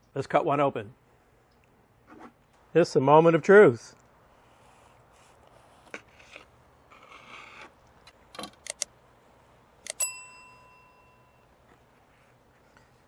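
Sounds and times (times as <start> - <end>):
sharp clicks: 8.0 - 8.9
bright bell ding: 10.0 - 11.5.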